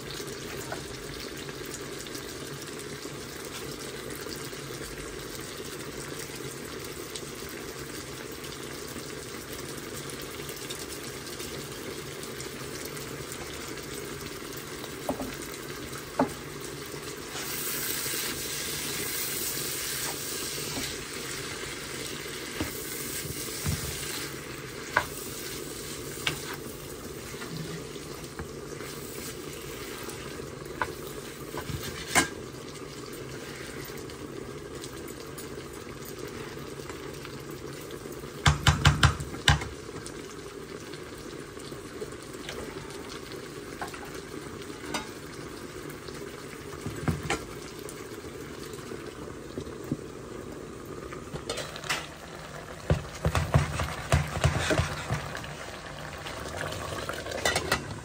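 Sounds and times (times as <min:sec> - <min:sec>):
food sizzling in a pan: 0:00.0 - 0:58.0
spoon knocking against a pan: 0:38.4 - 0:39.7, 0:52.9 - 0:55.2.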